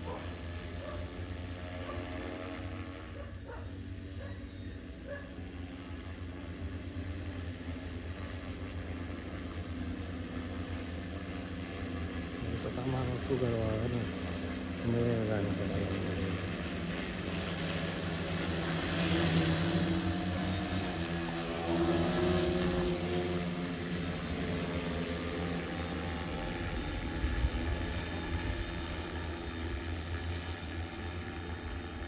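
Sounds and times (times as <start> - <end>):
drone propellers humming: 0.0 - 32.0.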